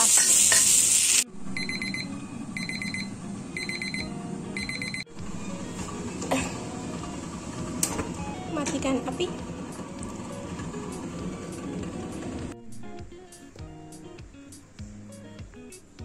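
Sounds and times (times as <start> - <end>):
greens sizzling in a wok: 0.0 - 1.3
gas burner rumble: 0.0 - 12.8
kitchen timer beeping: 1.5 - 5.2.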